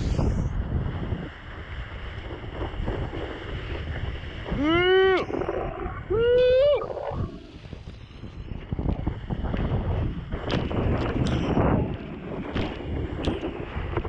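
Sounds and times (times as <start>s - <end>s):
wind on microphone: 0.0s - 14.0s
person yelling: 4.5s - 5.4s, 6.1s - 7.0s.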